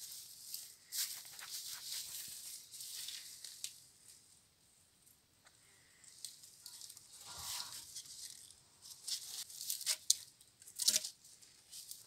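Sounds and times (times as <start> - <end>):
wooden poles scraping and rattling: 6.7 - 12.0.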